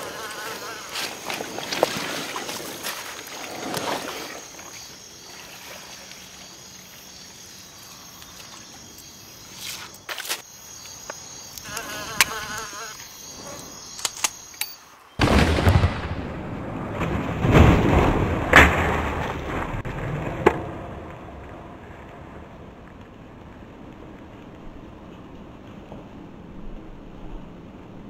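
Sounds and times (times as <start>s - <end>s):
insects buzzing: 0.0s - 15.4s
small clicks: 13.9s - 14.8s.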